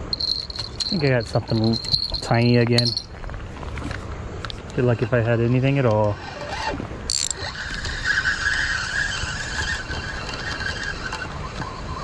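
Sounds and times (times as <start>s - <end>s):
fishing reel gears whirring: 0.0s - 3.1s, 5.6s - 12.0s.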